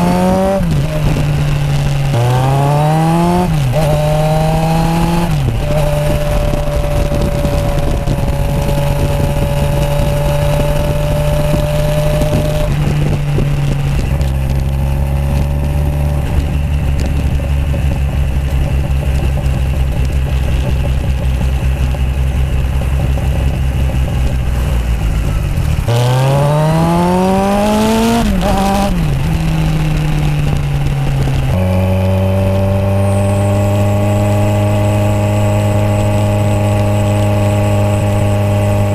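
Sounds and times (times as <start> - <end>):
motorcycle engine while riding: 0.0 - 38.9.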